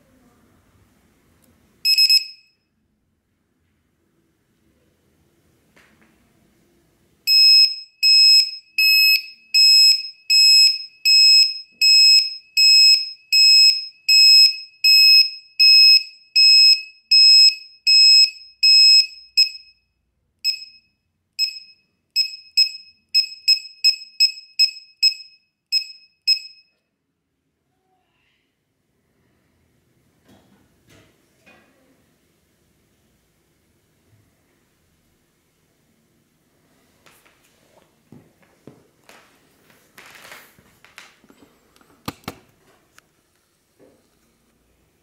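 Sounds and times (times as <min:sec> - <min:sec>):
two-tone alarm beeps: 0:01.8 - 0:02.6, 0:07.3 - 0:19.8, 0:20.4 - 0:26.8.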